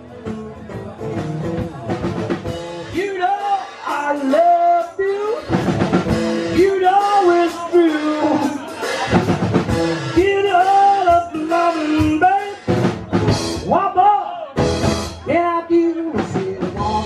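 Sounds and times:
acoustic guitars strumming: 0.0s - 14.0s, 14.6s - 17.0s
man singing into a microphone: 2.8s - 5.6s, 6.4s - 9.2s, 9.8s - 12.7s, 13.6s - 17.0s.

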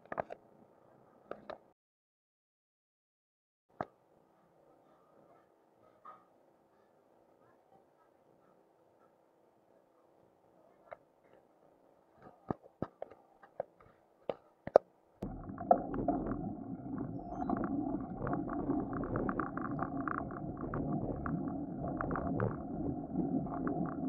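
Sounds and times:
wind rumble on microphone: 15.2s - 24.0s.

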